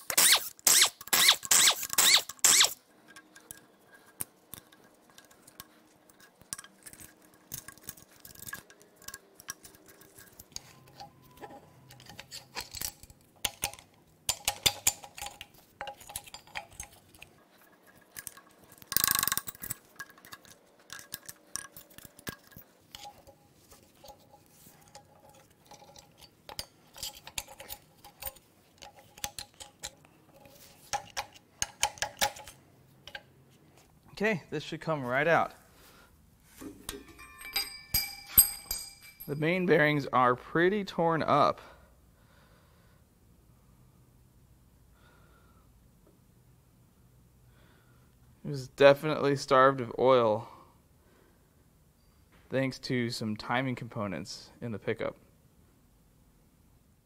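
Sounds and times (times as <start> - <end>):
metal tools and parts clanking: 0.0 - 33.3, 36.6 - 39.8
metal rattle: 12.0 - 33.3, 36.6 - 39.5.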